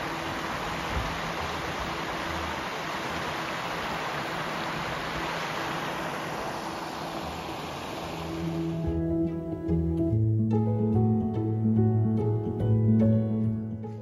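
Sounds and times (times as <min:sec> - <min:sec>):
creek water rushing over rocks: 0:00.0 - 0:08.9.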